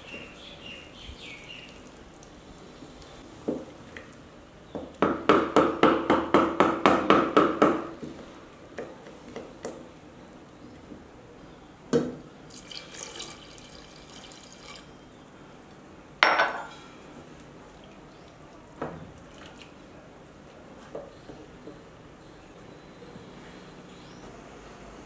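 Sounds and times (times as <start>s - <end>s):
knocks ringing in metal pot: 16.2s - 16.8s.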